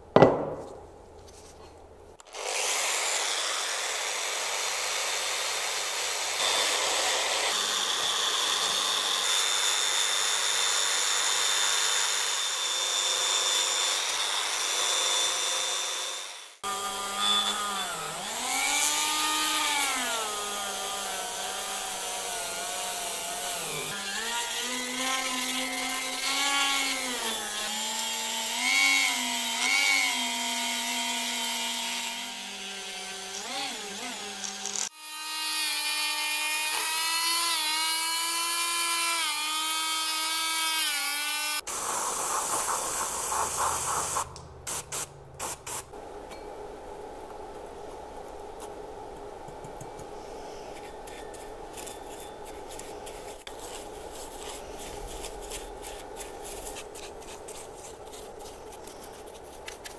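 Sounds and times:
spray can hissing: 41.7 - 45.9.

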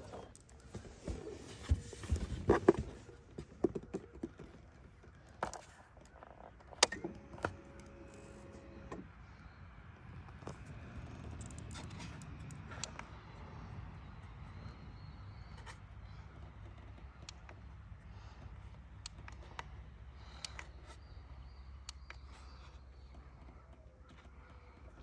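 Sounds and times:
handling knocks and clicks: 0.0 - 8.2.

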